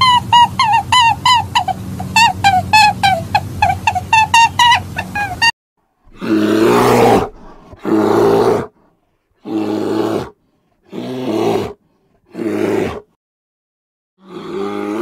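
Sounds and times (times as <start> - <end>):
bear growling: 6.1 - 13.1, 14.2 - 15.0.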